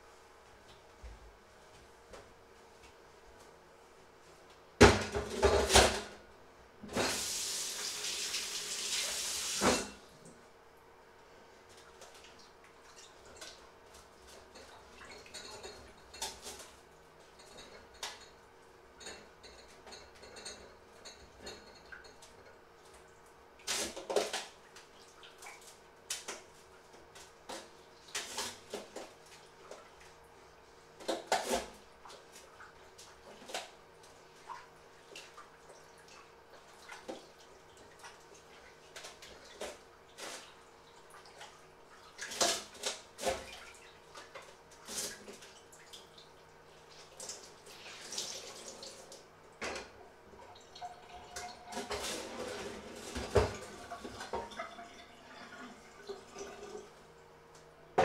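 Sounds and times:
dishes clinking and clattering: 14.5s - 16.6s, 17.3s - 22.6s.

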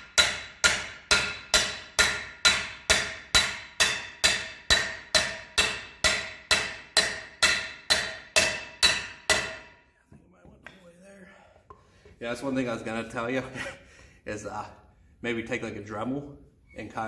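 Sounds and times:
hammer striking steel pipe: 0.0s - 9.9s.

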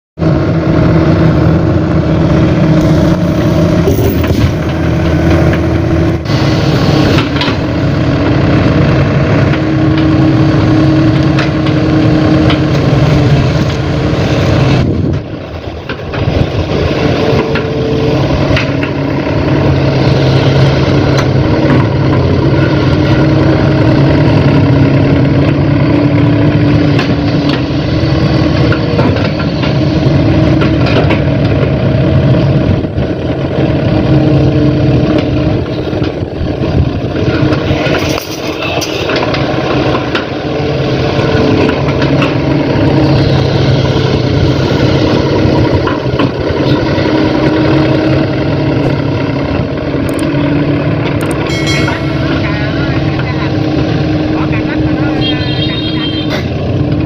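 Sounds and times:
excavator diesel engine running: 0.2s - 57.0s.

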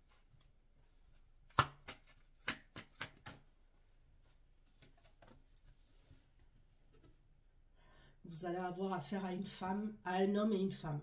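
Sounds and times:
cards slapping on table: 1.5s - 3.5s.

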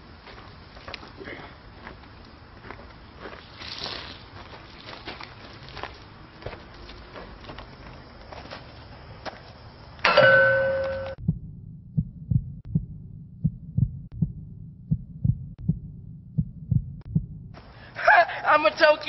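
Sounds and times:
ringing hit with two tones: 10.1s - 11.2s
muffled heartbeat thumps: 11.2s - 17.7s.

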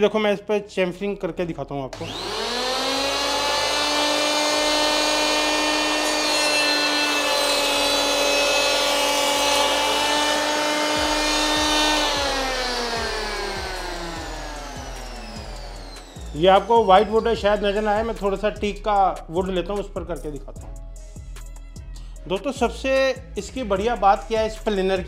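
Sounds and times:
electric planer motor whine: 2.0s - 17.4s
planer cutting wood: 2.0s - 17.9s
motor winding down: 2.0s - 18.4s.

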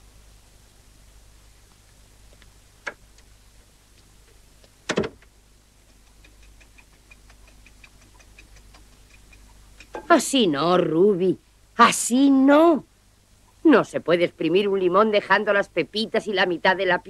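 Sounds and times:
door clicking open and shutting: 4.9s - 5.3s
faint fast ticking: 5.6s - 10.6s.

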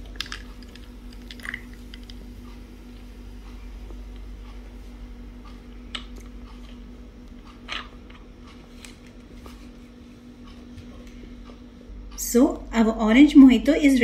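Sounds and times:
small crackles and pops: 0.0s - 2.2s
steady low hum: 0.0s - 14.0s.

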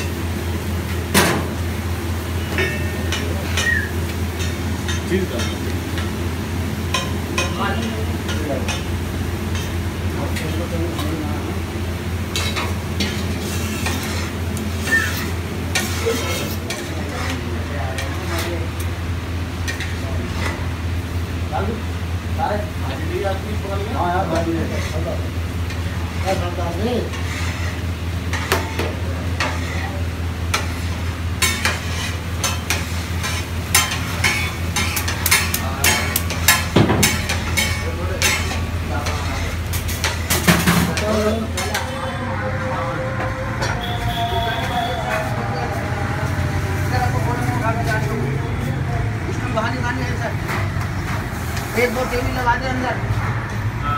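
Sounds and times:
metal spatula scraping griddle: 12.3s - 18.5s, 24.5s - 42.2s.

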